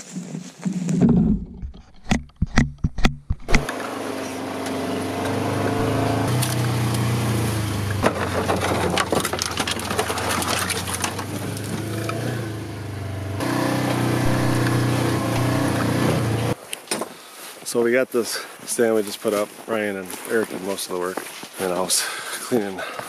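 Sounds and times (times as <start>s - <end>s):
vehicle engine running: 3.4s - 16.6s
clattering and rattling: 7.9s - 12.3s.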